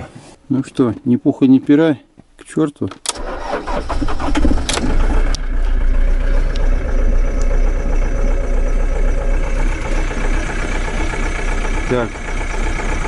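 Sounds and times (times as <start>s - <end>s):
diesel engine cranking and idling: 3.1s - 13.0s.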